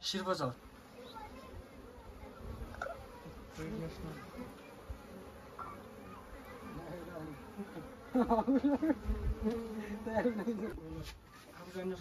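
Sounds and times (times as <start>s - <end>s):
bees buzzing: 0.0s - 12.0s
rising and falling pitched calls: 4.0s - 8.2s.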